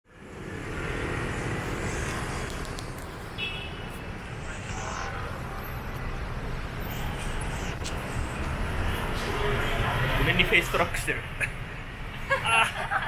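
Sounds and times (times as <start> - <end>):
street traffic rumble: 0.0 - 13.0
scooters and cars passing: 0.1 - 13.0.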